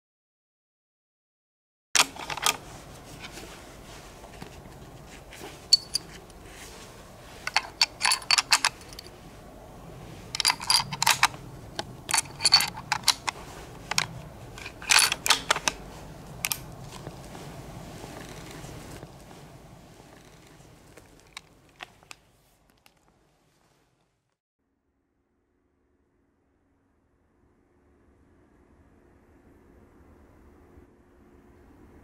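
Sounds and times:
rifle bolt clicks and clacks: 10.4s - 15.8s.

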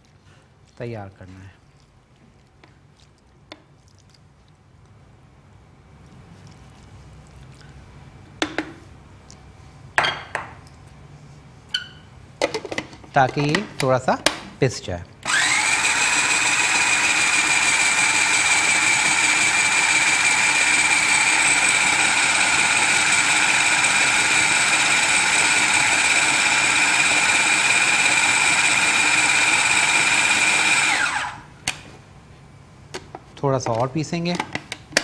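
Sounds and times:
food chopper motor whining: 15.2s - 31.5s.

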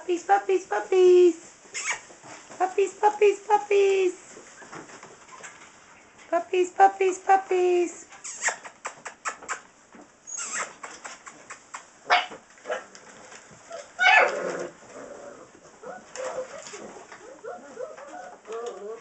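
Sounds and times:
puppies whining and yipping: 10.2s - 10.8s, 13.7s - 19.0s.

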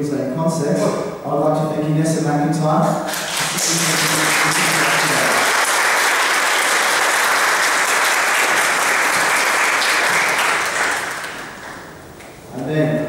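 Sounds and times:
audience applause: 3.1s - 11.9s.

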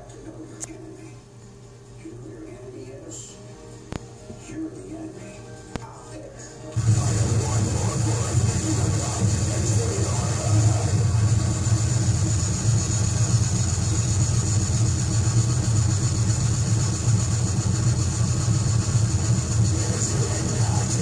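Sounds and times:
harsh distorted noise music: 6.7s - 21.0s.

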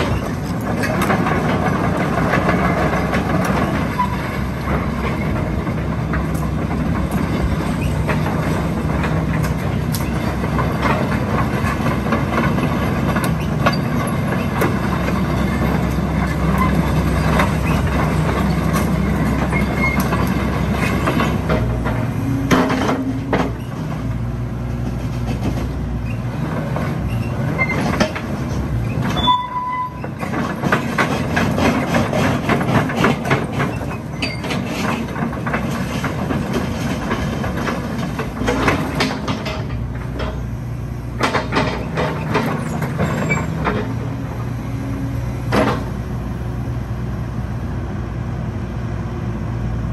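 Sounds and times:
track chains clanking: 0.0s - 46.6s
diesel engine running: 0.0s - 49.9s
short squeaks: 3.8s - 4.4s, 7.7s - 8.1s, 16.3s - 20.2s, 28.8s - 30.4s, 33.8s - 34.8s, 41.8s - 44.0s.

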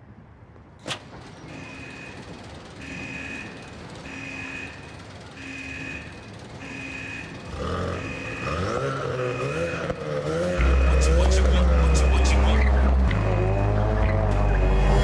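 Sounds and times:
low droning with swooping pitch: 10.6s - 15.0s.

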